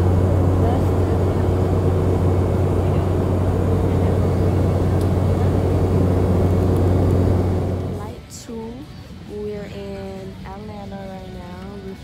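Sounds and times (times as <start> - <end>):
even rushing noise: 0.0 - 8.1
deep steady engine hum: 0.0 - 12.0.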